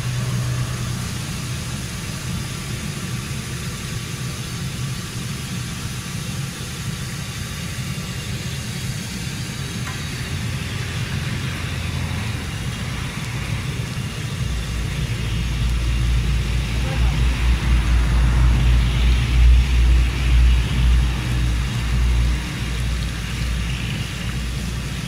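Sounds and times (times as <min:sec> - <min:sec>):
fish deep-frying in oil: 0:00.0 - 0:25.0
low rumble: 0:10.1 - 0:23.7.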